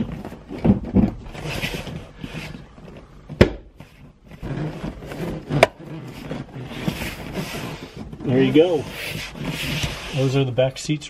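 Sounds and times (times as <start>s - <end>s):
leather rubbing and scraping: 0.0s - 11.0s.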